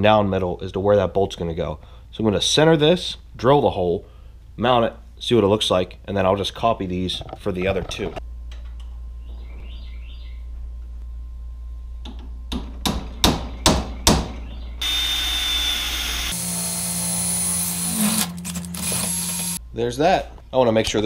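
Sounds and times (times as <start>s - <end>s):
cordless drill whining: 14.8s - 19.6s.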